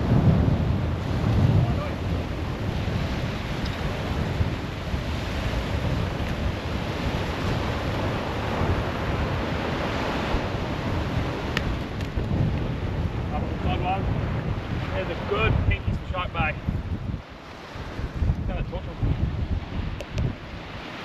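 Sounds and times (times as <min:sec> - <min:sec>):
small waves washing on shore: 0:00.0 - 0:21.0
wind buffeting microphone: 0:00.0 - 0:21.0.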